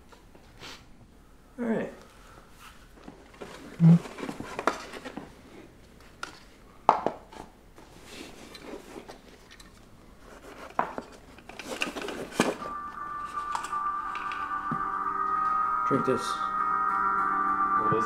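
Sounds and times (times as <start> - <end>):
background music drone: 11.8 - 18.0.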